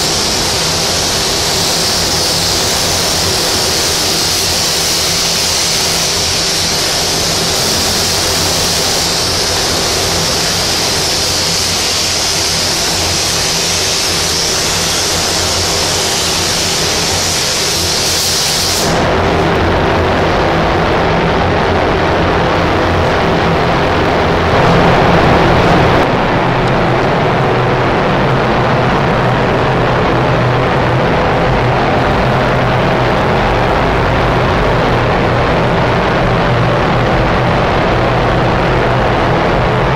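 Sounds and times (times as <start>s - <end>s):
spray gun hissing: 0.0s - 19.1s
dull rush of air: 0.0s - 39.9s
low hum: 0.0s - 39.9s.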